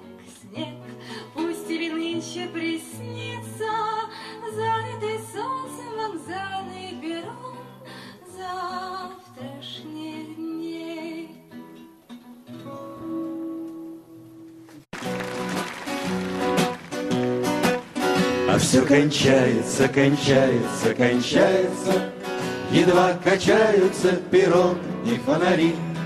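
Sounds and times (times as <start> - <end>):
song with strummed guitar: 11.1 - 26.0.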